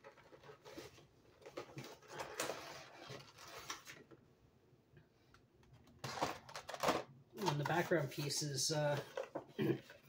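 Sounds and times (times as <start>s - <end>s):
packaging rustling and clicking: 0.0s - 4.2s, 5.7s - 7.9s.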